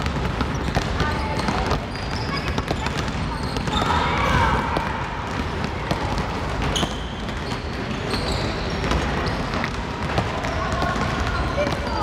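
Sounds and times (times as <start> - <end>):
basketballs bouncing on gym floor: 0.0 - 12.0.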